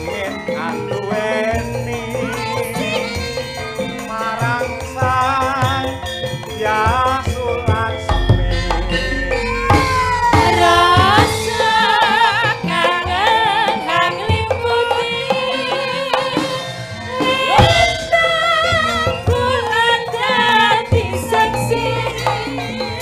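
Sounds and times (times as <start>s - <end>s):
gamelan accompaniment: 0.0s - 23.0s
woman singing with vibrato: 2.0s - 6.0s, 6.6s - 23.0s
hand-drum strokes: 6.8s - 14.0s.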